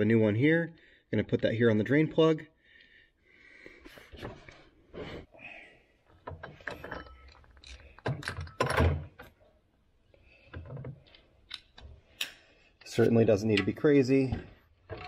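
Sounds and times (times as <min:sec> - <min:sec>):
metal tools clicking and scraping: 0:06.5 - 0:08.8.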